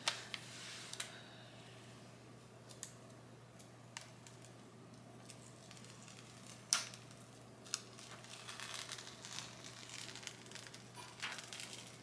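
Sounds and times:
plastic film crinkling as peeled: 0:05.2 - 0:12.0.

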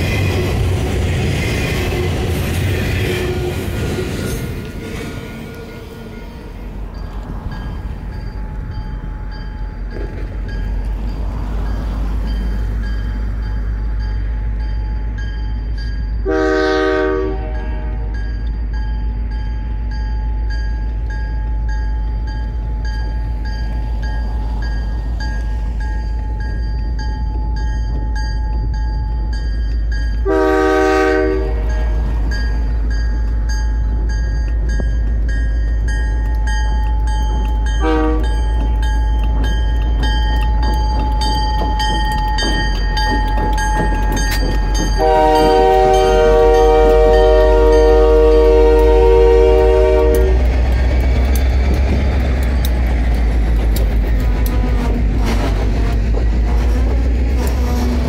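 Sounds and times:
low locomotive rumble: 0:00.0 - 0:58.0
locomotive horn blasts: 0:16.2 - 0:18.2, 0:30.2 - 0:32.2, 0:37.8 - 0:38.5, 0:44.8 - 0:50.6.

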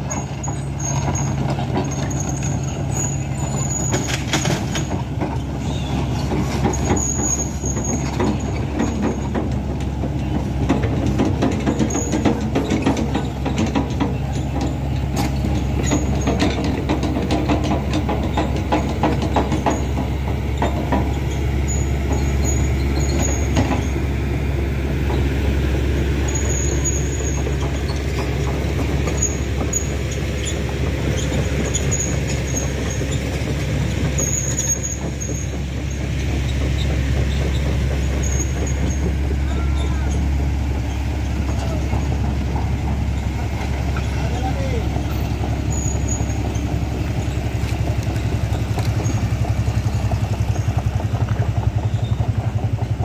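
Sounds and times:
truck engine droning: 0:00.0 - 0:53.0
gravel crackling and rattling: 0:25.0 - 0:53.0.

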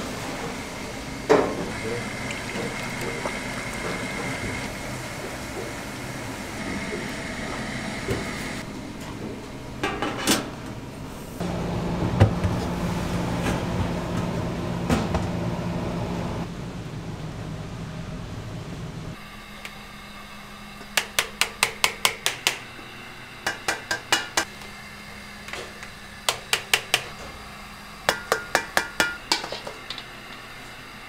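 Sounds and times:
low machine hum: 0:00.0 - 0:31.0
high machine whine: 0:00.5 - 0:08.7.

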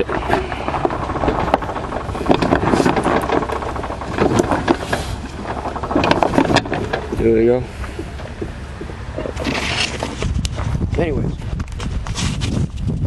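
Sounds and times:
clicks and knocks: 0:00.0 - 0:10.6
body rattling: 0:00.0 - 0:13.0
wheels rolling over rough ground: 0:00.0 - 0:13.0.

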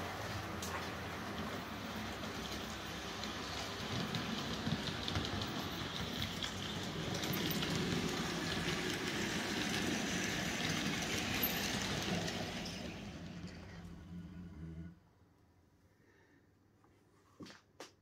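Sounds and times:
wheels clattering on rails: 0:00.0 - 0:14.6
model train motor hum: 0:02.0 - 0:15.0.

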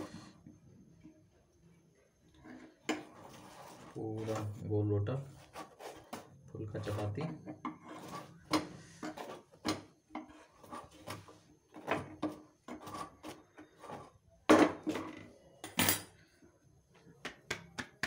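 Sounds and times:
light scrapes and taps: 0:05.3 - 0:14.1.

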